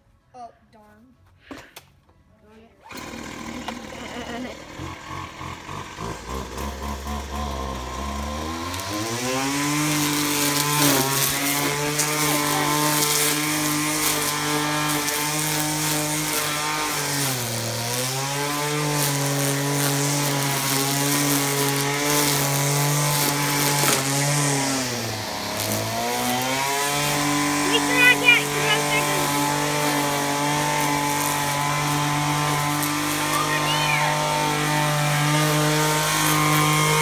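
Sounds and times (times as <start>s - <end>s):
string trimmer revving: 2.8s - 37.0s.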